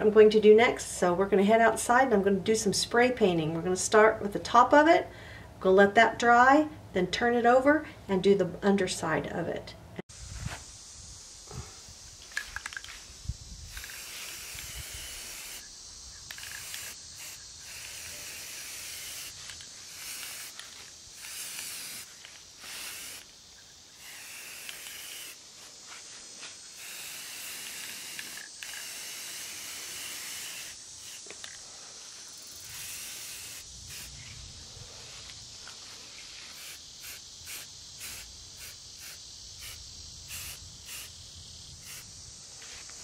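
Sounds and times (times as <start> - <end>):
spray paint can hissing: 12.2 - 23.4, 24.0 - 31.6, 32.3 - 34.2, 36.4 - 41.2, 41.8 - 42.1.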